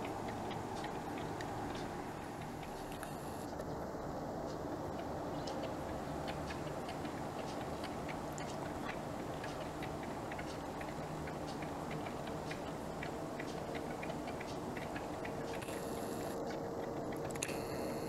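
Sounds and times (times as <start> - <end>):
low background hum: 0.0 - 18.0
partridges ticking: 4.4 - 18.0.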